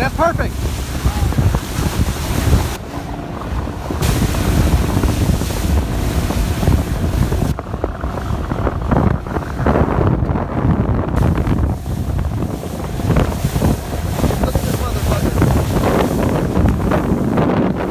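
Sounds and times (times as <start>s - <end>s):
jet skis splashing water: 0.0s - 17.9s
wind buffeting microphone: 0.0s - 17.9s
faint engine drone: 2.8s - 10.3s.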